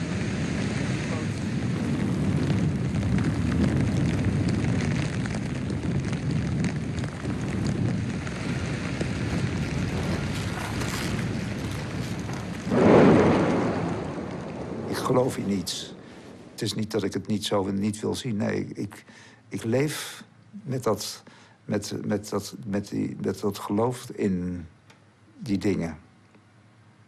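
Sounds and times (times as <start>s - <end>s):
wind buffeting microphone: 0.0s - 16.6s
crackling and rattling: 0.8s - 17.7s.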